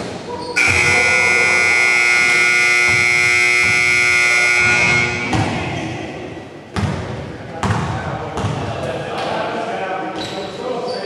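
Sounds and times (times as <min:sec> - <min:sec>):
scoreboard buzzer blast: 0:00.6 - 0:05.8.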